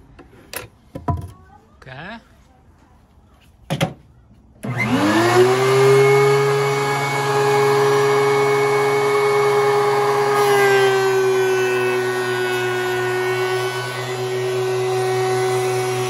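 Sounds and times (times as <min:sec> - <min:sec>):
planer cutting board: 0:04.6 - 0:16.0
thickness planer running: 0:04.6 - 0:16.0.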